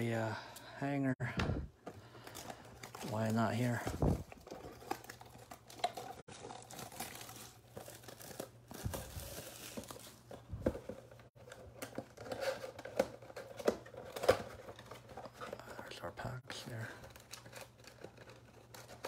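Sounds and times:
plastic shrink wrap tearing: 2.8 - 10.3.

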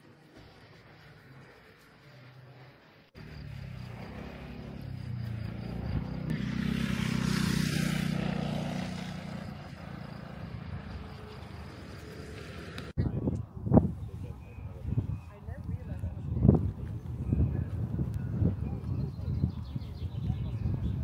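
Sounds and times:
engine drone passing by: 3.2 - 13.0.

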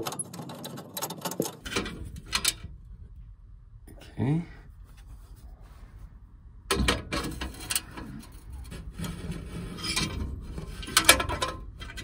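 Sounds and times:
metal scraping and rubbing: 6.8 - 12.0.

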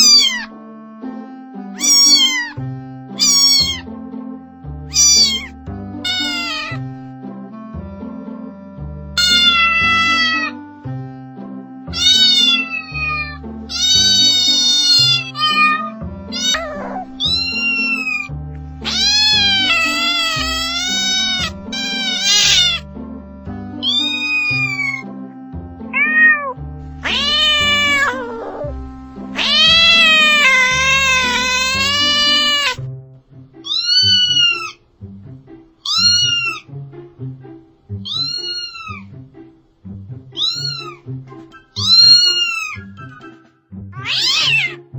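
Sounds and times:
cats meowing: 0.0 - 0.5, 1.8 - 2.6, 3.2 - 3.8, 4.9 - 6.8, 9.2 - 10.6, 11.9 - 22.8, 23.8 - 25.1, 26.0 - 32.8, 33.6 - 34.8, 35.8 - 36.7, 38.0 - 39.1, 40.4 - 41.1, 41.7 - 43.4, 44.0 - 44.9
background music with bass line: 0.0 - 33.6.

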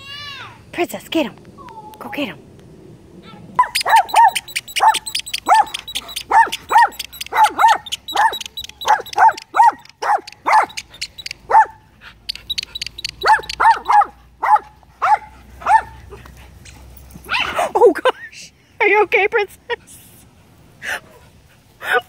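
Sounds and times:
small dog yapping: 3.6 - 15.9.

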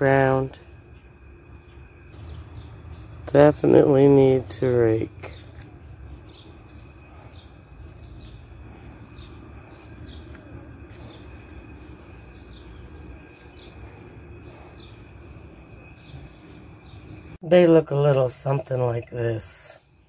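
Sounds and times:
low background rumble: 0.0 - 19.8
birds chirping: 0.0 - 20.0.

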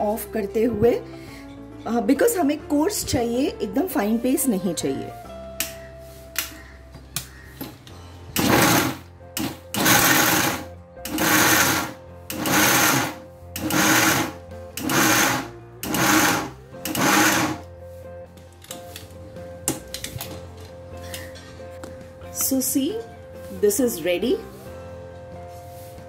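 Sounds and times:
mixer grinder bursts: 8.4 - 17.6.

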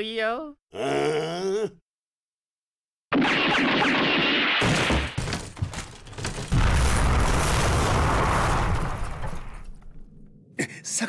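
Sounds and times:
wooden barrels breaking: 4.6 - 10.2
loud rumbling boom: 6.4 - 10.3.

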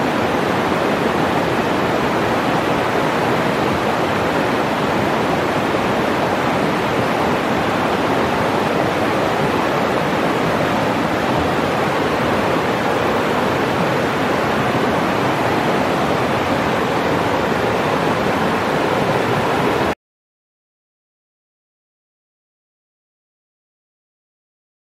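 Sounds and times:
river rushing over rocks: 0.0 - 19.9.

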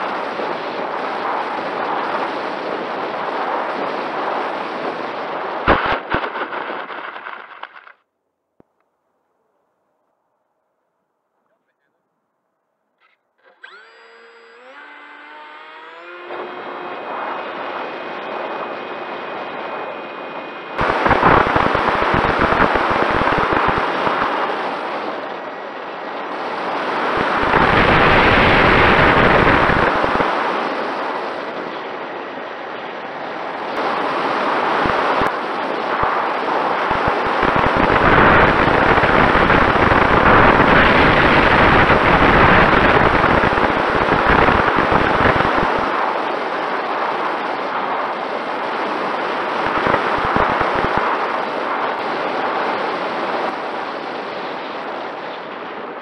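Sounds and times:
wind rush: 0.0 - 8.0, 16.0 - 56.0
electric motor whine: 13.4 - 24.6.

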